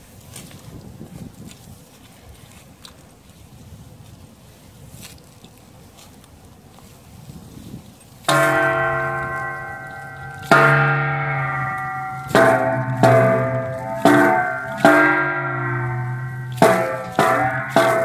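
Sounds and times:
metal plate struck and ringing: 8.3s - 18.0s.

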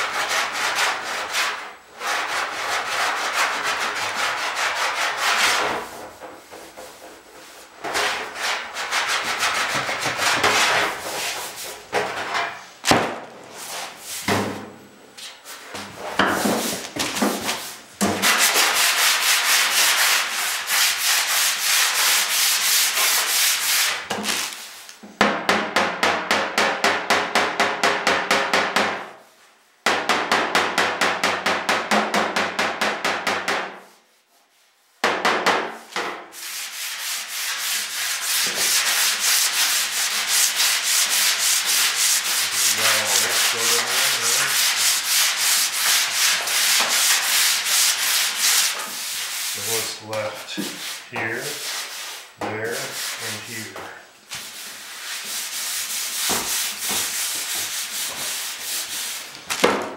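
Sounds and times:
sanding block rubbing: 0.0s - 6.0s, 6.7s - 11.8s, 16.5s - 24.6s, 36.4s - 59.3s.

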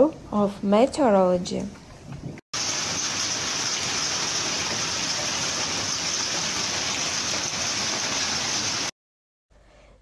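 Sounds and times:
heavy rain hissing: 2.6s - 8.9s.

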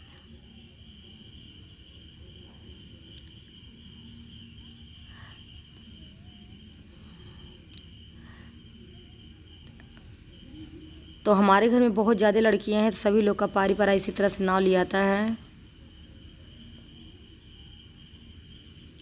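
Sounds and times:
faint clicks: 3.1s - 3.4s.

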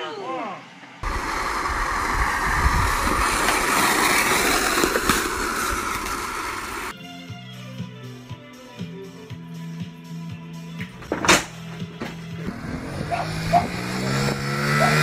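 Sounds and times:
skateboard wheels rolling on asphalt: 0.8s - 7.0s
skateboard clacks: 2.1s - 6.9s
music with a beat: 6.9s - 11.0s.

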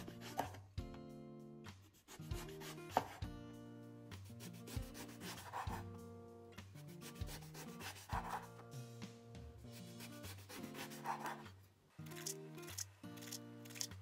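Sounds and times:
knife slicing eggplant: 0.0s - 0.6s, 2.1s - 3.3s, 7.0s - 8.6s, 10.0s - 11.5s
soft background music: 0.0s - 14.0s.

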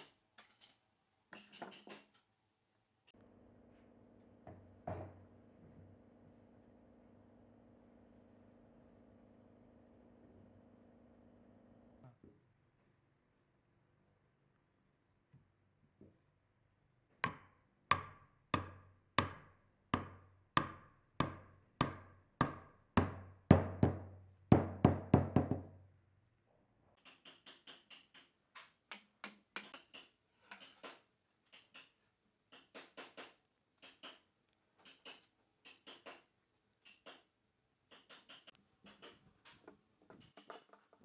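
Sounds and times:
hammer striking wood: 17.2s - 25.6s
wooden parts clicking and tapping: 27.0s - 37.3s, 37.9s - 41.0s.

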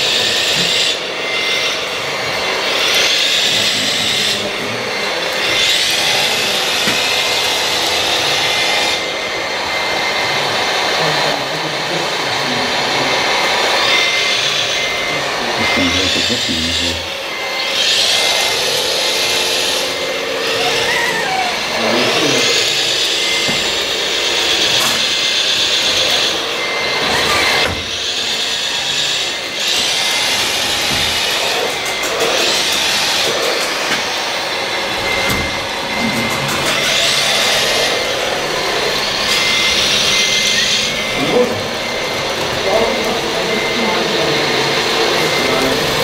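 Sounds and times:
model loader motors whining: 12.0s - 46.0s.

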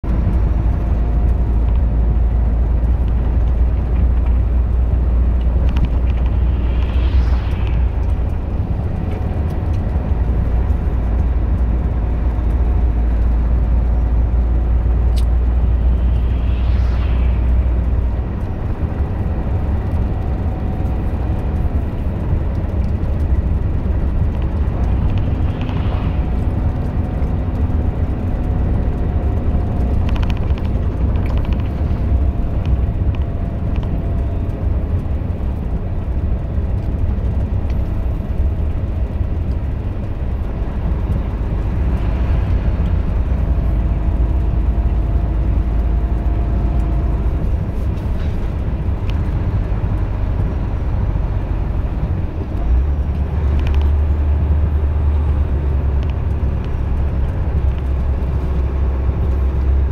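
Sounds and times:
truck diesel engine rumble: 0.0s - 59.9s
tyre and road noise on snow: 0.0s - 59.9s
brief whooshing: 4.6s - 10.7s, 14.4s - 22.1s, 23.5s - 28.6s.

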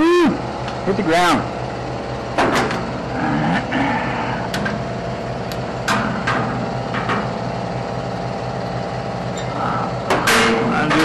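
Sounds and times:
low mechanical hum: 0.0s - 11.0s
metal knocks and clanks: 2.4s - 2.9s, 5.8s - 7.4s, 9.4s - 11.0s.

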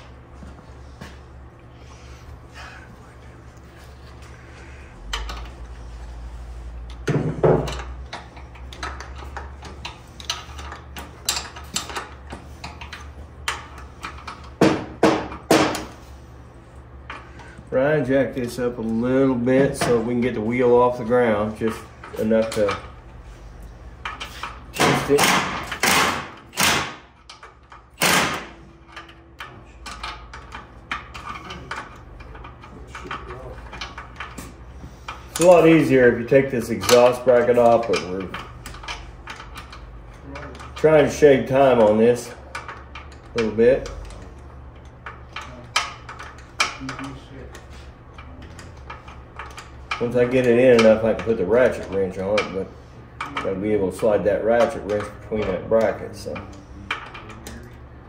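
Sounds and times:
knocks against metal: 14.6s - 15.9s
wrench clicking and tapping on metal: 36.8s - 52.6s.

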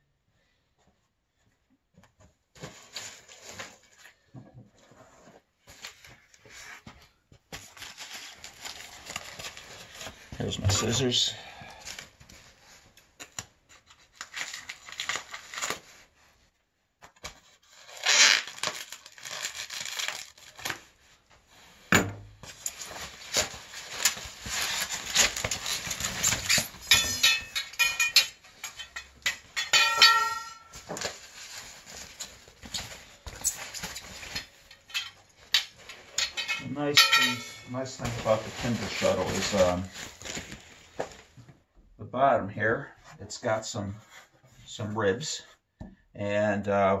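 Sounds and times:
scissors cutting plastic packaging: 17.7s - 20.8s, 22.6s - 31.3s
plastic crinkling: 17.7s - 21.0s, 22.4s - 37.2s, 37.9s - 41.3s.

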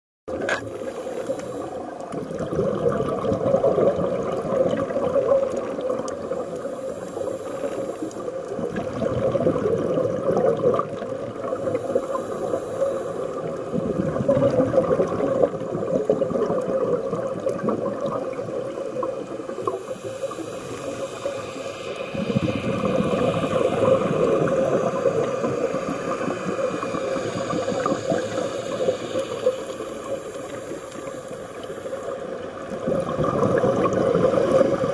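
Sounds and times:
underwater exhaled bubbles rushing: 0.3s - 34.9s
steady hum: 19.6s - 32.3s.

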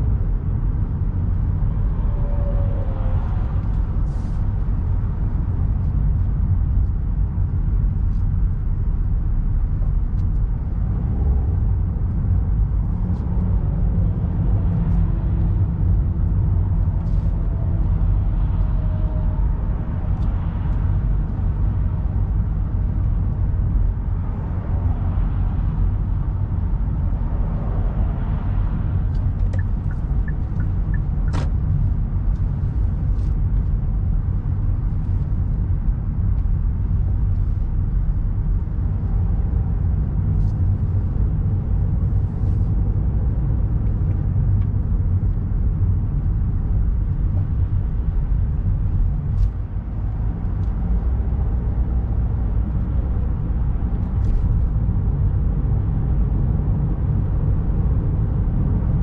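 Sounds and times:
road and engine rumble: 0.0s - 59.0s.

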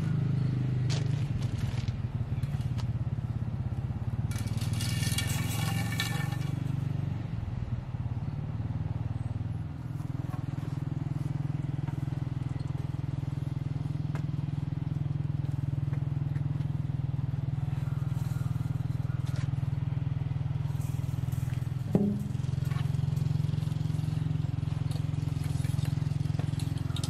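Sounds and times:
low engine-like drone: 0.0s - 27.0s
wire mesh rattling and scraping: 4.2s - 7.0s, 20.6s - 27.0s.

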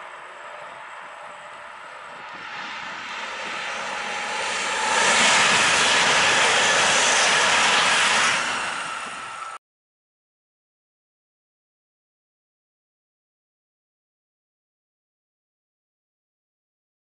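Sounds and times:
high-speed train passing: 0.0s - 9.6s.

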